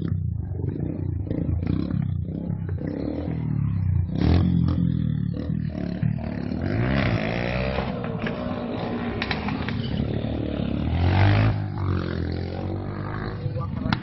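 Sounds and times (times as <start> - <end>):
motorcycle engine revving: 0.0 - 14.0.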